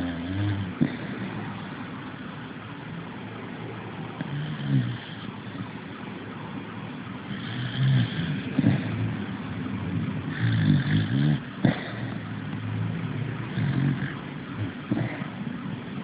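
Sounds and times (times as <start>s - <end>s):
dog snoring: 0.0s - 1.8s, 4.2s - 5.6s, 7.3s - 9.0s, 10.3s - 12.3s, 13.4s - 15.4s.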